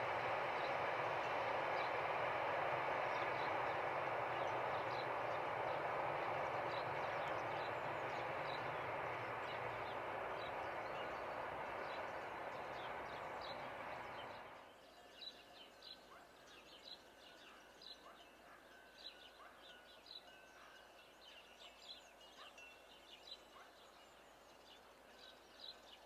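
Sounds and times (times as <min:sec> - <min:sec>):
train wheels rumbling on rails: 0:00.0 - 0:14.6.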